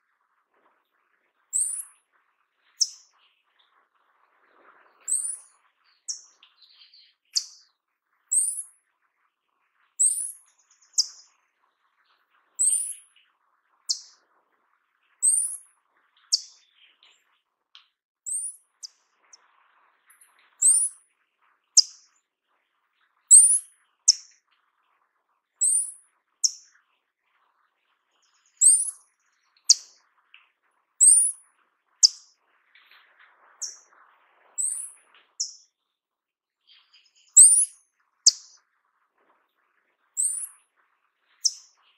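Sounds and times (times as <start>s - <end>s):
thin high-pitched bird calls: 1.4s - 3.8s, 4.8s - 8.8s, 9.8s - 11.4s, 12.0s - 14.2s, 15.2s - 19.4s, 20.1s - 21.1s, 21.7s - 22.2s, 23.3s - 24.4s, 25.6s - 26.8s, 28.1s - 33.0s, 33.6s - 33.9s, 34.6s - 35.8s, 36.6s - 38.7s, 40.1s - 41.9s.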